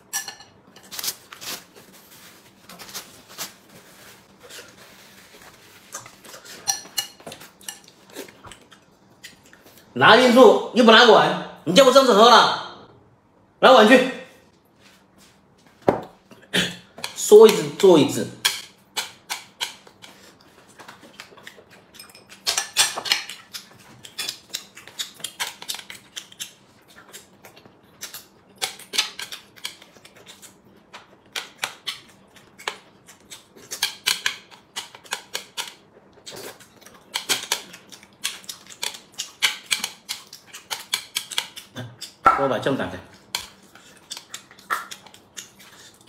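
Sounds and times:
man chewing: 0.5s - 9.9s, 18.8s - 42.2s, 43.1s - 46.0s.

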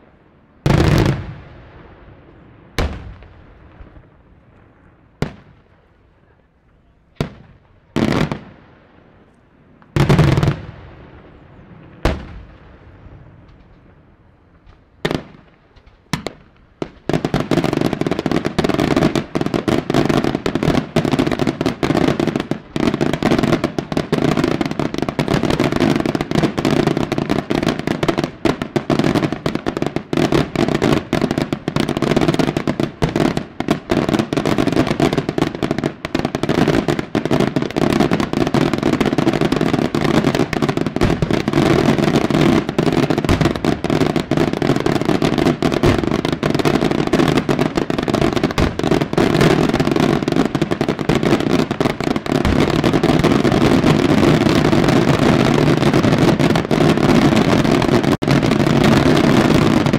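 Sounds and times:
fireworks bangs and crackling: 0.0s - 59.9s.

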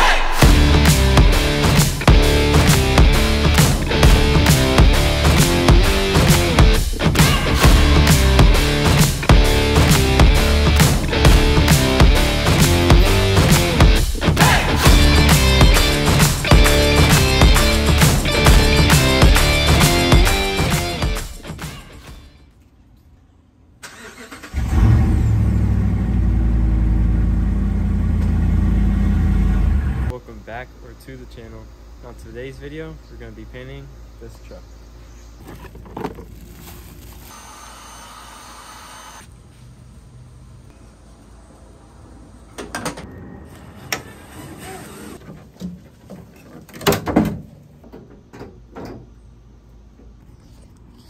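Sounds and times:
truck engine starting and idling: 23.8s - 30.1s.

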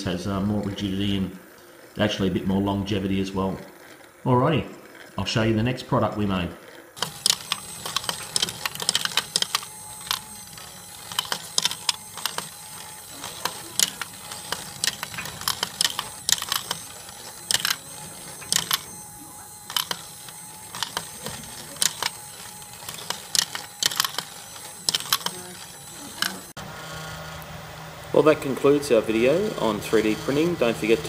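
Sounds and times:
faint steady whine: 0.0s - 31.0s
steel balls clicking and rattling: 7.0s - 26.5s.

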